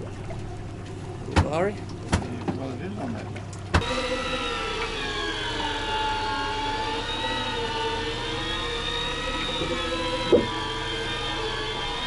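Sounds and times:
boat engine whining: 0:00.0 - 0:12.0.

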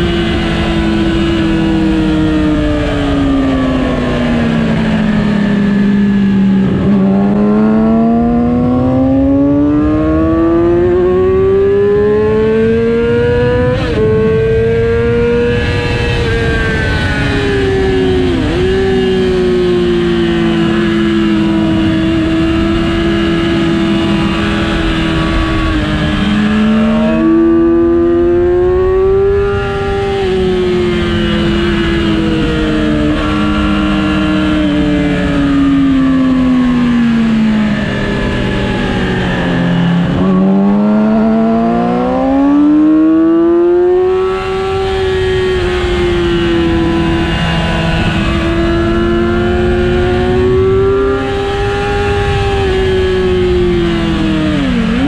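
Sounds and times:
motorcycle engine at high revs: 0:00.0 - 0:55.0.

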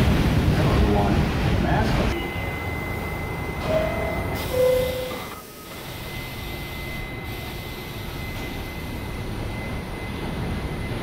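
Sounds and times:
subway train rumble: 0:00.0 - 0:11.0
faint high whine: 0:02.1 - 0:11.0.

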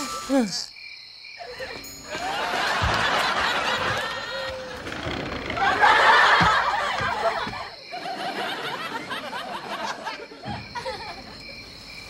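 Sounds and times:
studio audience laughing: 0:02.1 - 0:04.8, 0:05.4 - 0:11.2.

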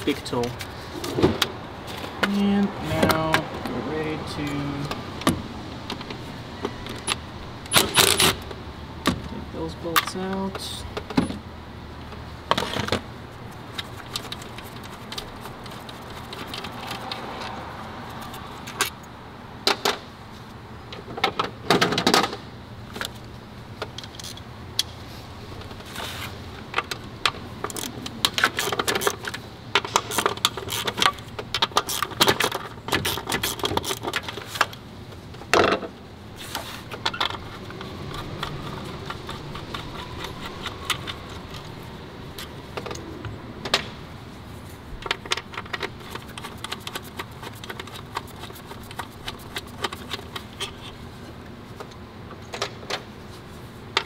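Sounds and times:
hand ratchet clicking: 0:27.7 - 0:34.2, 0:37.2 - 0:41.7.

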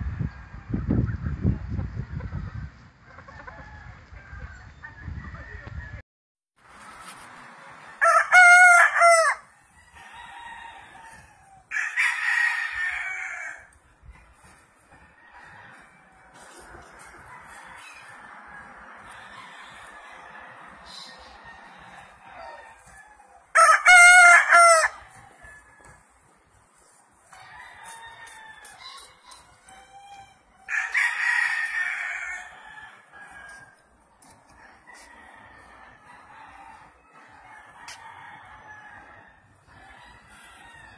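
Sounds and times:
rooster crowing: 0:07.6 - 0:13.8, 0:15.0 - 0:26.0, 0:27.3 - 0:33.8, 0:34.5 - 0:40.9.

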